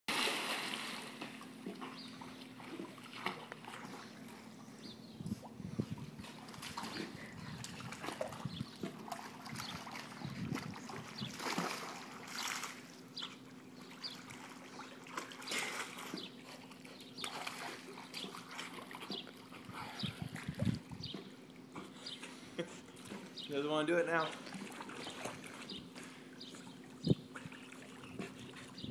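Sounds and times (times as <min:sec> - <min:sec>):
pool water splashing: 0:00.1 - 0:05.0, 0:06.2 - 0:28.8.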